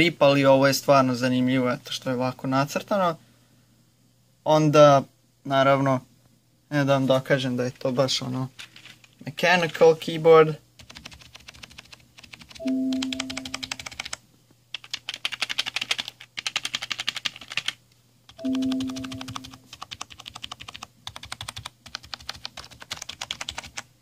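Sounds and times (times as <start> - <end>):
short ringing tone: 12.6 - 13.6, 18.4 - 19.6.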